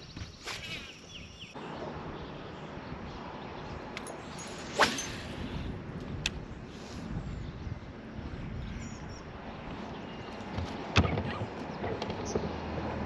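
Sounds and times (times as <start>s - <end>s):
bird chirps: 0.0s - 5.1s, 8.6s - 10.5s
steady outdoor noise: 0.0s - 13.0s.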